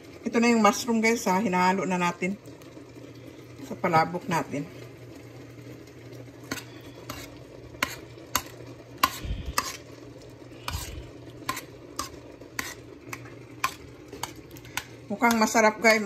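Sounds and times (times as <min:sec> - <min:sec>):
steady low hum: 0:02.9 - 0:16.0
metal spoon scraping a wok: 0:06.5 - 0:10.0, 0:10.6 - 0:15.6.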